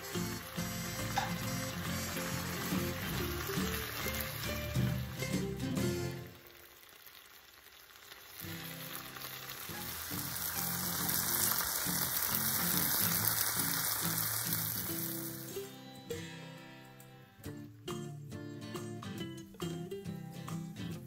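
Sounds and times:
background music: 0:00.0 - 0:06.5, 0:08.6 - 0:21.0
vegetables sizzling in a wok: 0:00.0 - 0:16.7.

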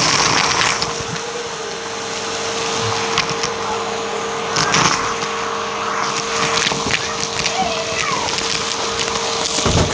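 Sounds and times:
vacuum cleaner motor whine: 0:00.0 - 0:09.9
debris clicking and rattling in hose: 0:06.1 - 0:09.9.

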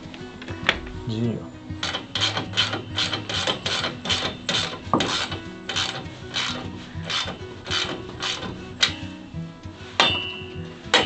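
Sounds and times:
ratchet wrench clicking: 0:01.8 - 0:08.9.

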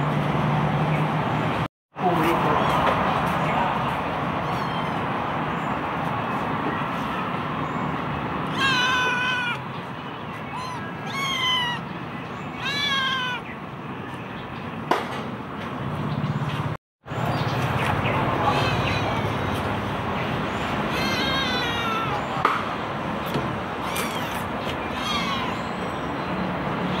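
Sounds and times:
kitten meowing: 0:04.4 - 0:05.1, 0:08.4 - 0:09.6, 0:10.4 - 0:11.9, 0:12.5 - 0:13.4, 0:20.9 - 0:22.4, 0:23.8 - 0:25.8.

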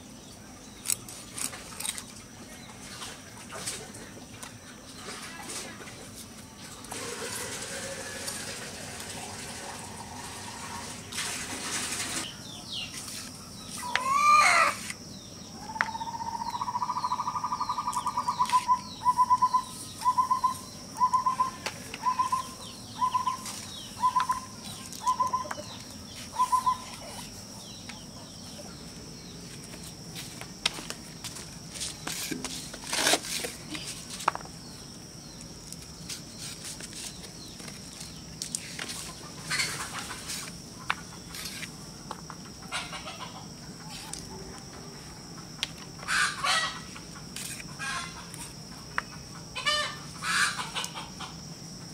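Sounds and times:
bird trilled call: 0:15.6 - 0:27.0
bird swooping call: 0:26.3 - 0:26.9.

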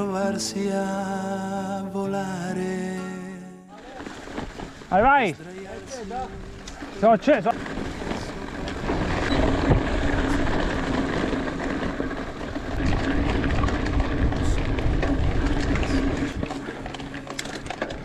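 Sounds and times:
bike rattling over bumps: 0:03.7 - 0:18.0
tyres rumbling over dirt: 0:03.7 - 0:18.0
wind buffeting microphone: 0:04.4 - 0:18.0.

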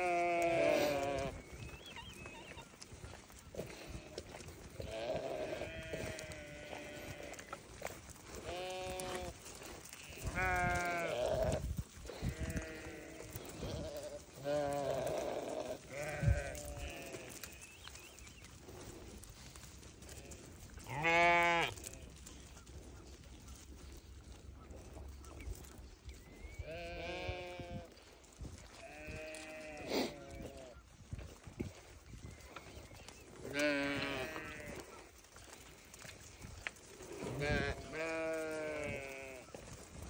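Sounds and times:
sheep bleating: 0:00.0 - 0:02.8, 0:03.6 - 0:07.6, 0:08.3 - 0:17.7, 0:20.1 - 0:22.0, 0:26.7 - 0:28.0, 0:28.7 - 0:30.8, 0:33.5 - 0:35.5, 0:37.2 - 0:39.6.

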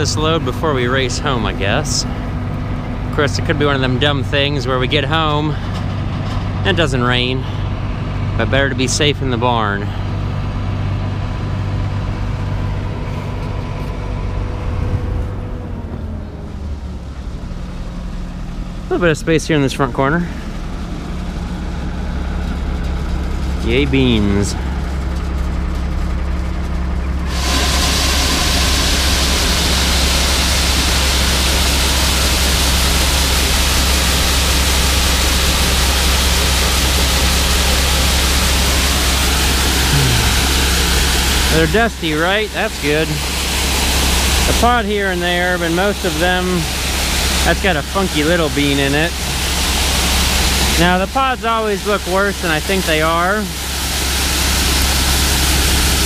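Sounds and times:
combine engine drone: 0:00.0 - 0:56.0
grain pouring into wagon: 0:23.3 - 0:56.0.

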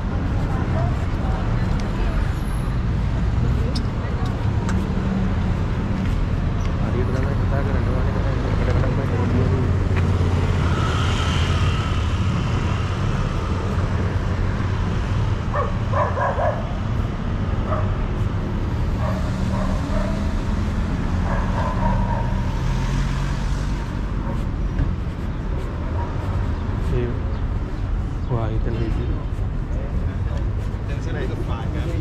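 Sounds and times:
car engines running: 0:00.0 - 0:32.0
dog barking: 0:15.5 - 0:16.8, 0:17.6 - 0:18.0, 0:19.0 - 0:20.3, 0:21.1 - 0:22.6.

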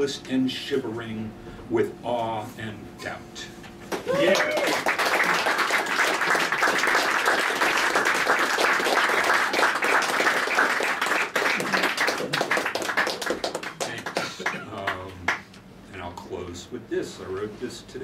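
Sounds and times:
audience clapping: 0:03.9 - 0:15.5.

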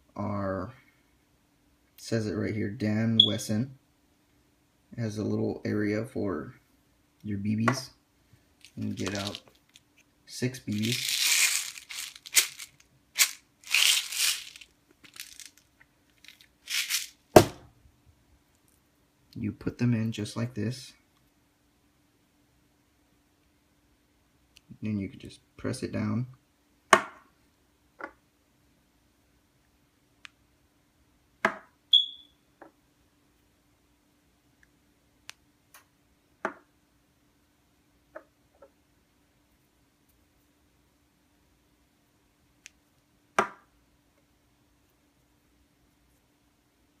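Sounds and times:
crinkly rustling: 0:08.6 - 0:10.0, 0:10.6 - 0:17.2.

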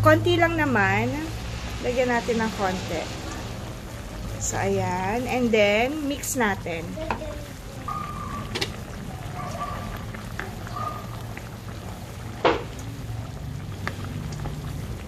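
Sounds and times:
sauce bubbling and popping: 0:05.2 - 0:15.0.

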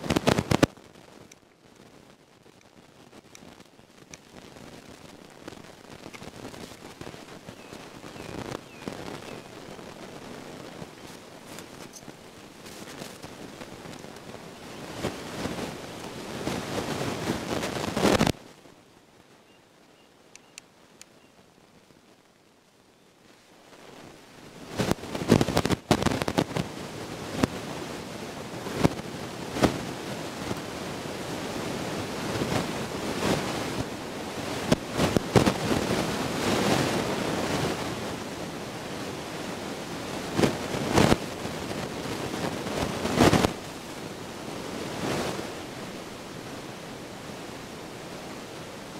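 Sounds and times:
wind buffeting microphone: 0:00.0 - 0:18.4.

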